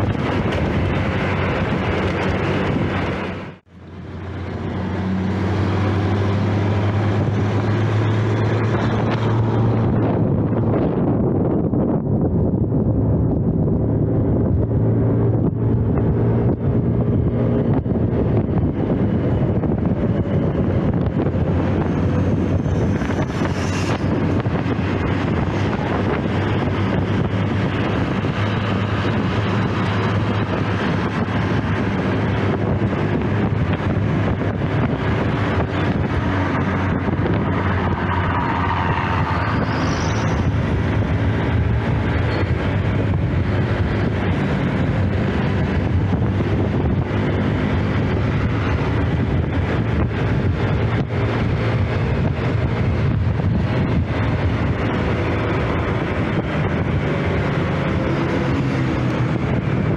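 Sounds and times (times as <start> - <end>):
passing road traffic: 0.0 - 59.9
wind noise on microphone: 0.0 - 59.9.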